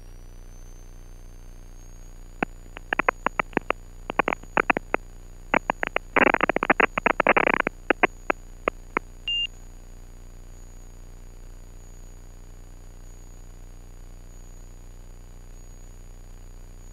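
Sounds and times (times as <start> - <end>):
steady hum: 2.1 - 9.5
crackling clicks on intercom audio: 2.4 - 9.5
short high beep: 9.3 - 9.5.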